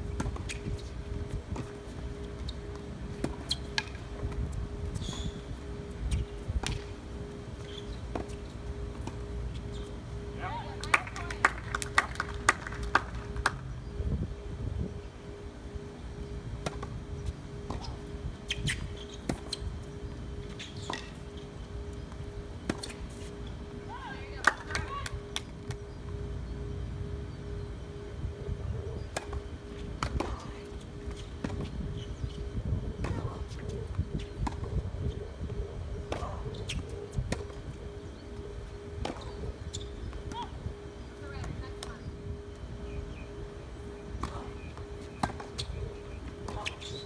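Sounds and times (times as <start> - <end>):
tennis ball bouncing: 6.6 - 13.6, 16.6 - 16.9, 30.0 - 31.7, 34.4 - 34.7, 39.0 - 39.4, 44.2 - 45.7.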